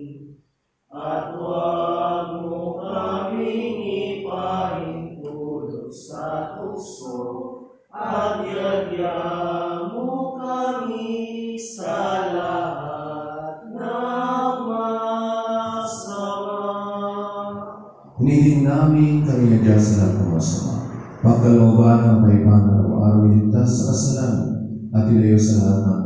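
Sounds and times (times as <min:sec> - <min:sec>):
person singing slow chant: 0:00.0 - 0:00.3, 0:00.9 - 0:24.2
man's loud voice: 0:18.2 - 0:26.0.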